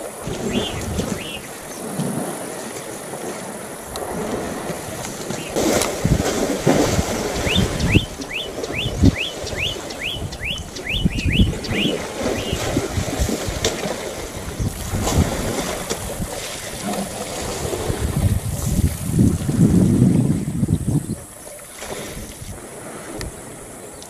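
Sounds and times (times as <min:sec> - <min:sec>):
water sloshing: 0:00.0 - 0:20.6
wind buffeting microphone: 0:00.0 - 0:24.0.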